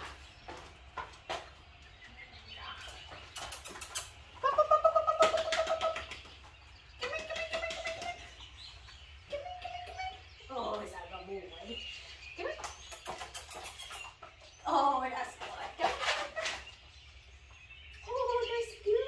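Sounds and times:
high-pitched fluttering calls: 2.3s - 17.1s
hand claps: 5.1s - 6.4s.

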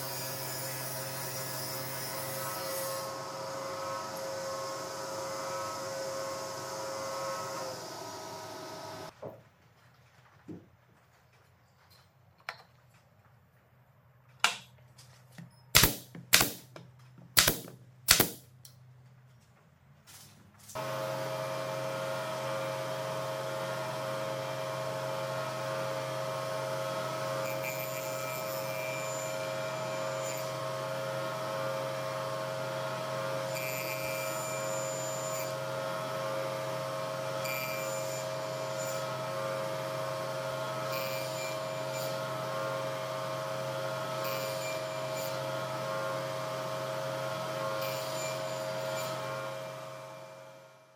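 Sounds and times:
electric hand planer running: 3.0s - 9.1s, 20.8s - 28.0s, 34.6s - 50.6s.

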